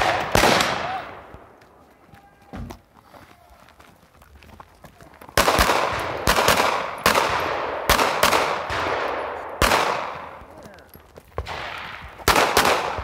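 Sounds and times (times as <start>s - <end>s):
gunshots with echoing tail: 0.0s - 1.4s, 5.4s - 10.4s, 11.4s - 13.0s.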